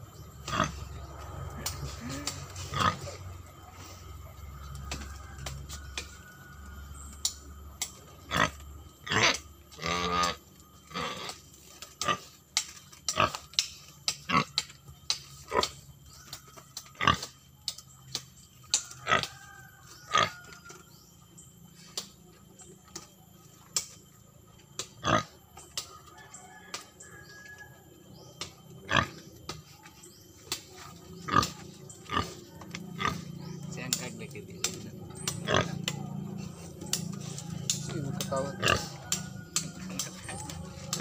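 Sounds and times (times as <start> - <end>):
pig grunting: 0.4 - 4.4, 8.3 - 11.4, 31.2 - 41.0.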